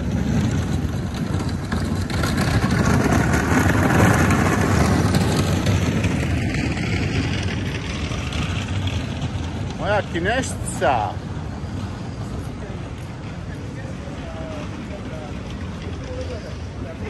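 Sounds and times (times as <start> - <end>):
motorcycle engine passing: 0.0 - 10.6.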